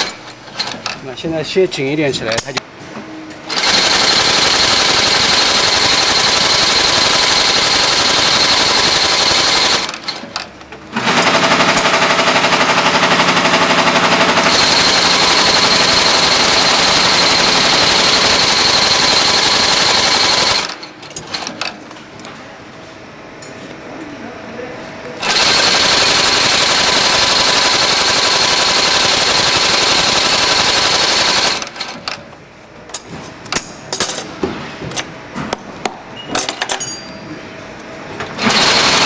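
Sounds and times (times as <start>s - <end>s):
stitching machine clatter: 0.0s - 1.0s, 3.5s - 21.8s, 25.2s - 32.2s, 38.4s - 39.0s.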